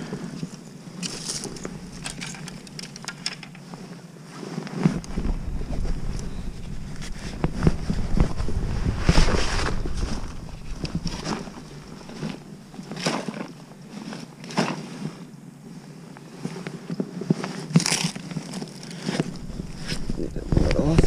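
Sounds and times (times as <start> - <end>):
wind buffeting microphone: 0.0 - 3.8, 4.7 - 13.9, 19.0 - 21.0.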